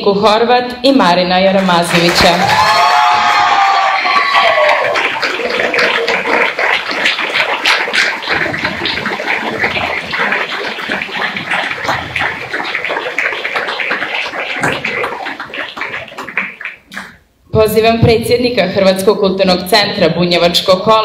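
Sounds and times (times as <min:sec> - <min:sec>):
crowd applauding: 0:01.6 - 0:17.3.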